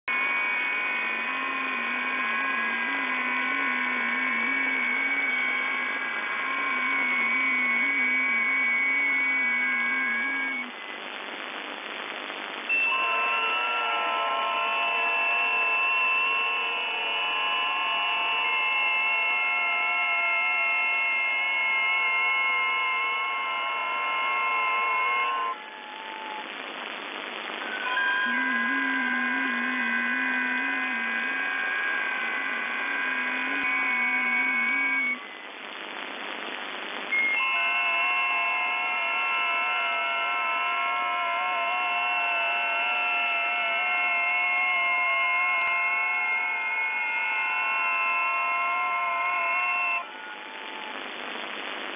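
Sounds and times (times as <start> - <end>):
receiver hiss: 0.0 - 51.9
digital signal tones: 0.1 - 10.7, 27.6 - 35.4, 37.1 - 50.9.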